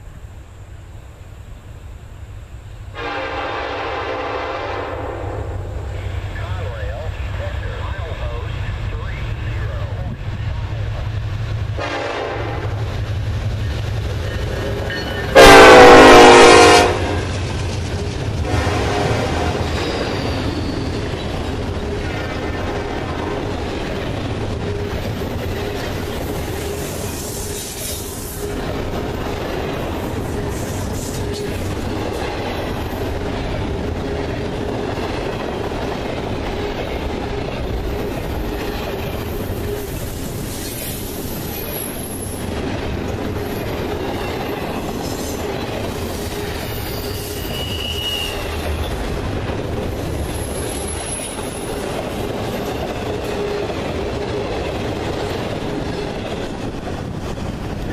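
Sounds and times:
train wheels rumbling on rails: 0.0s - 57.9s
wheel squeals: 14.2s - 15.4s, 19.7s - 21.4s, 43.4s - 49.0s.

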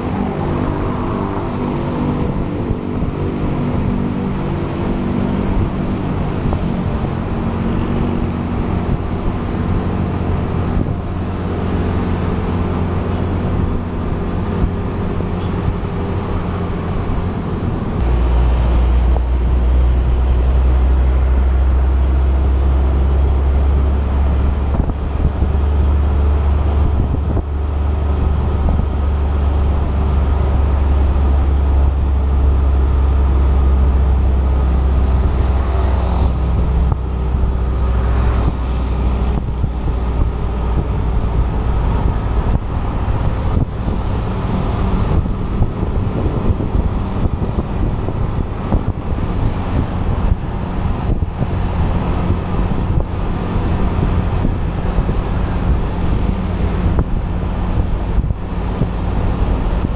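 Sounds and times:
road and wind rumble: 0.0s - 59.9s
surrounding traffic: 0.0s - 59.9s.

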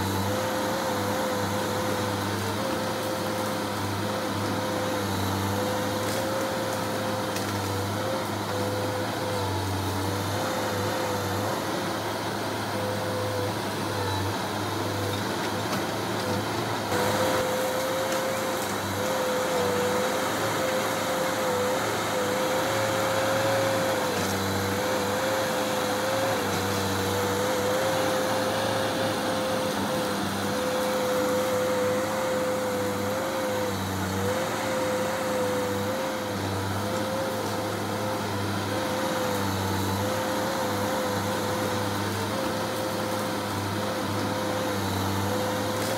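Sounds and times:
heavy diesel machinery running: 0.0s - 45.9s.

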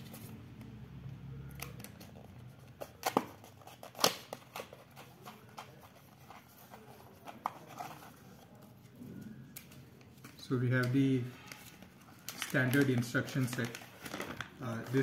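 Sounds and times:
cardboard box handling: 2.6s - 8.6s.

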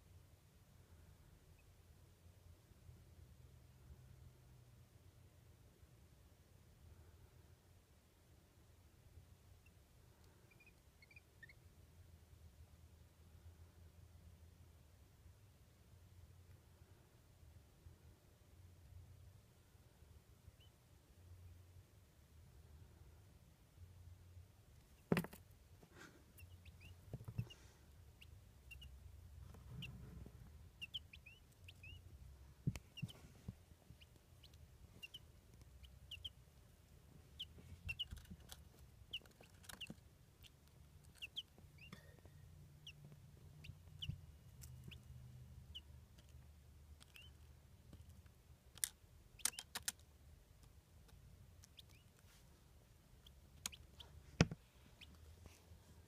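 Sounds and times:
quail chicks peeping: 9.6s - 11.8s, 20.4s - 20.8s, 24.8s - 55.6s.

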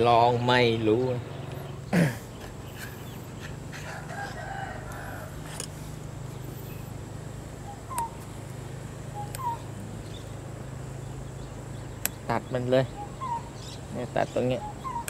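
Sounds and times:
steady low hum: 0.0s - 15.0s
rooster crowing: 3.7s - 5.6s.

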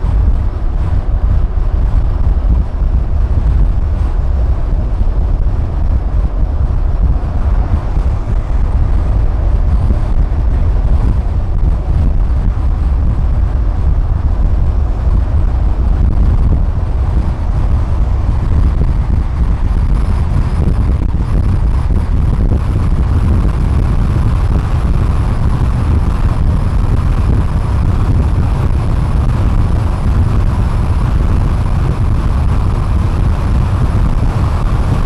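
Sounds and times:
road noise: 0.0s - 35.0s
wind noise: 0.0s - 35.0s.

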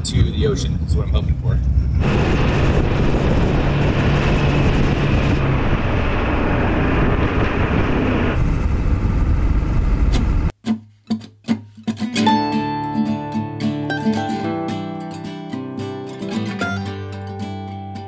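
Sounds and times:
diesel truck engine droning: 0.0s - 10.5s
road and wind noise: 0.0s - 10.5s
strummed acoustic guitar: 10.6s - 18.0s.

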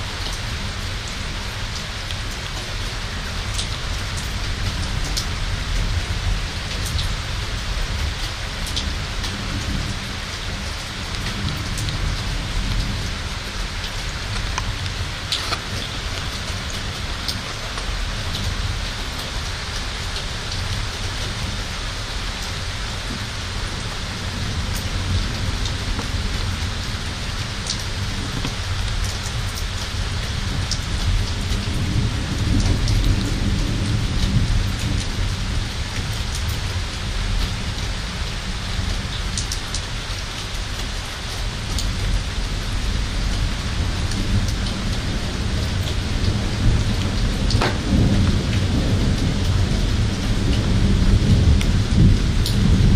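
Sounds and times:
heavy rain: 0.0s - 52.9s
raindrops ticking on surfaces: 0.0s - 52.9s
thunder rumble: 42.9s - 52.9s.

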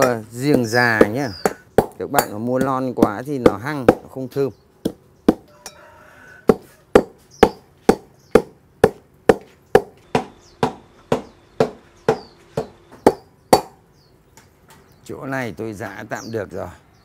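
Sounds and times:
pestle pounding in mortar: 0.0s - 5.5s, 6.4s - 13.8s.

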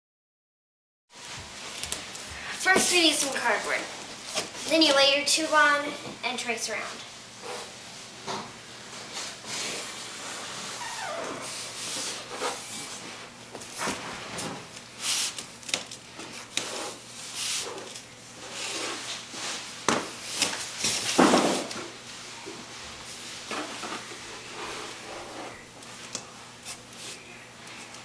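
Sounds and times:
rubbing and shuffling on cardboard: 16.4s - 19.7s.

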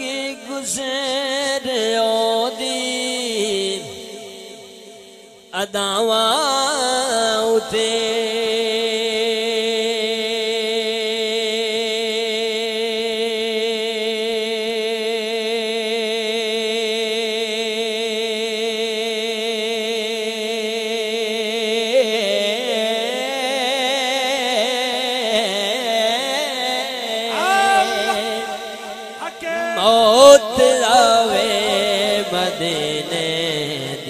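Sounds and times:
man singing: 0.0s - 34.0s.

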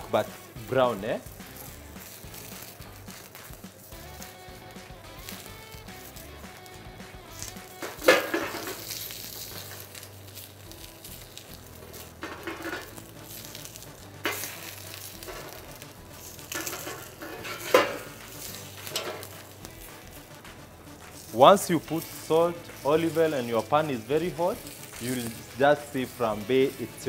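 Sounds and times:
pepper sizzling in oil: 0.0s - 27.0s
metal tongs clanking on pan: 7.8s - 10.0s, 11.9s - 13.0s, 16.5s - 19.4s.

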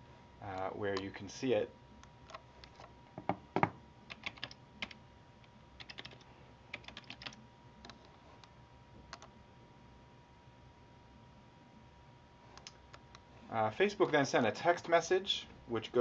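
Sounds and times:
computer keyboard typing: 4.1s - 5.0s, 5.8s - 8.0s.

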